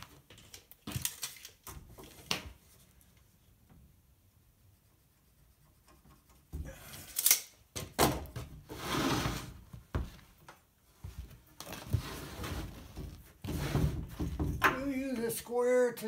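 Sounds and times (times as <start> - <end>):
wood scraping slide: 8.7 - 9.6.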